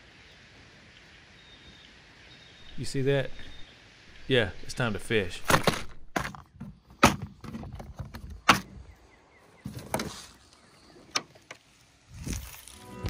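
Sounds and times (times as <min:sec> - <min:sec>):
handling knocks and clicks: 0:05.5 - 0:08.8.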